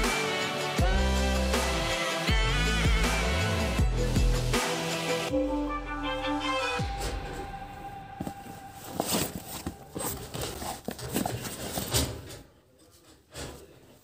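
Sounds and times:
fabric rustling: 8.2s - 12.5s.

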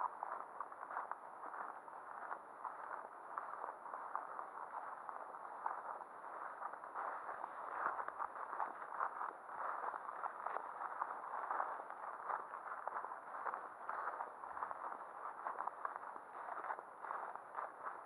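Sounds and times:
footsteps on grassy path: 0.0s - 18.0s
grass rustling and crackling: 0.1s - 18.0s.

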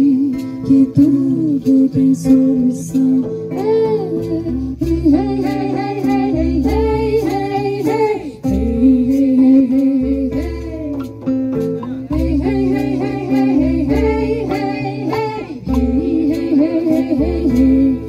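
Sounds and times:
strummed acoustic guitar: 0.0s - 18.0s
women singing: 0.0s - 18.0s
steady beat: 0.4s - 18.0s.

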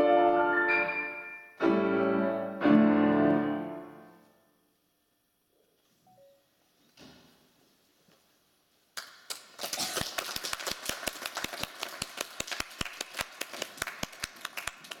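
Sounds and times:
audience applause: 9.0s - 15.0s
close sharp claps: 9.0s - 15.0s.

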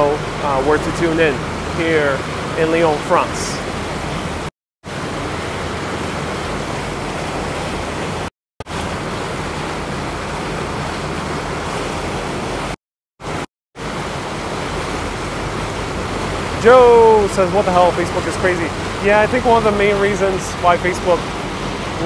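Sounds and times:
rushing wind and water: 0.0s - 22.0s
low steady hum: 13.9s - 22.0s.

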